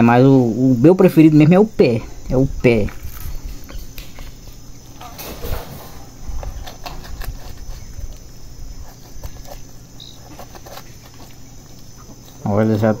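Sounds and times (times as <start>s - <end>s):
small clicks and scrapes: 5.0s - 12.4s
knife cutting and scraping chicken: 6.4s - 11.4s.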